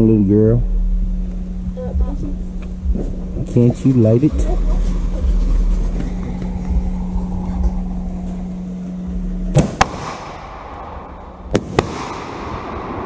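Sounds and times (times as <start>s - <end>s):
firework sharp bangs: 9.5s - 13.0s.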